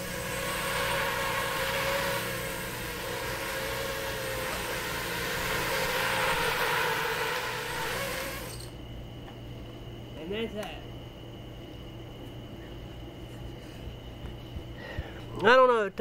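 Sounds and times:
quadcopter motors whining: 0.0 - 8.9.

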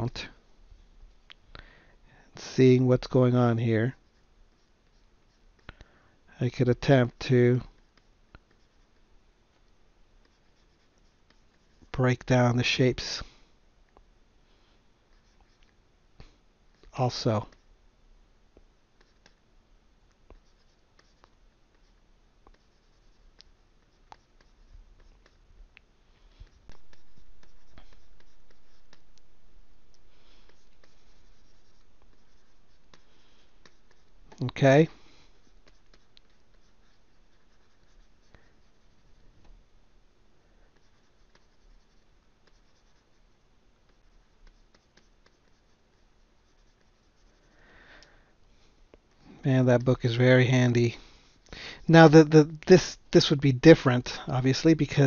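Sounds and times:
stylus scratching on drawing tablet: 2.4 - 5.7, 6.5 - 9.1, 10.2 - 13.2, 15.1 - 15.6, 18.9 - 19.4, 20.3 - 25.5, 26.2 - 39.4, 40.6 - 47.6.

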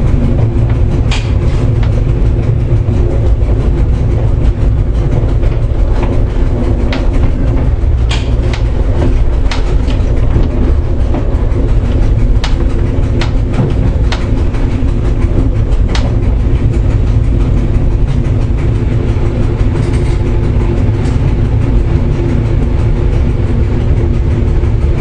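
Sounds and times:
train low rumble: 0.0 - 25.0
wheels clicking over rail joints: 0.0 - 25.0.

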